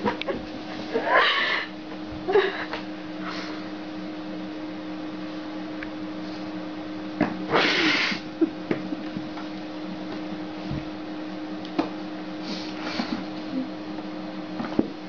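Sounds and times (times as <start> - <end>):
low electrical hum: 0.0 - 15.0
cat hissing: 7.5 - 8.3.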